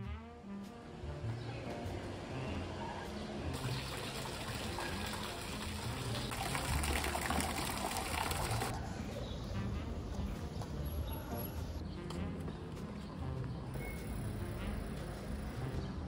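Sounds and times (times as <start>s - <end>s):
fountain water splashing: 3.6s - 8.7s.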